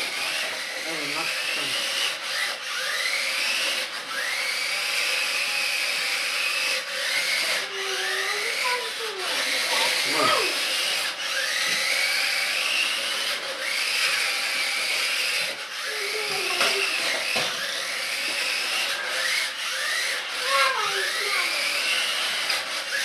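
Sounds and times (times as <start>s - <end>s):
toy car electric motor whining: 0.0s - 23.0s.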